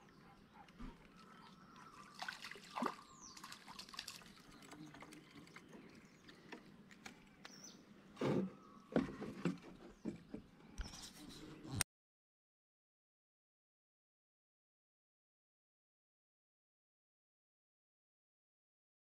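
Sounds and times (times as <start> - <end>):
water splashing and dripping: 0.7 - 7.2.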